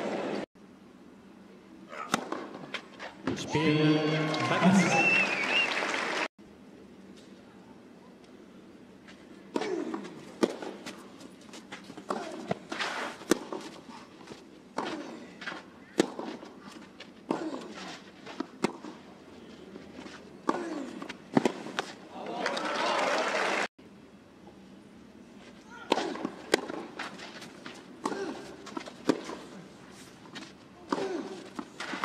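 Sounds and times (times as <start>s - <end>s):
racket striking tennis ball: 2.0s - 3.4s, 9.5s - 11.0s, 11.9s - 13.8s, 14.7s - 16.5s, 17.2s - 19.0s, 20.4s - 22.0s, 25.8s - 29.6s, 30.3s - 32.0s.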